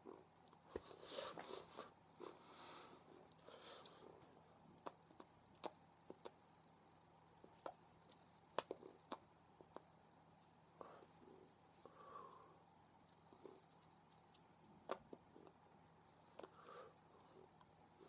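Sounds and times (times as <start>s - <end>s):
breathing through the nose: 0.8s - 4.1s.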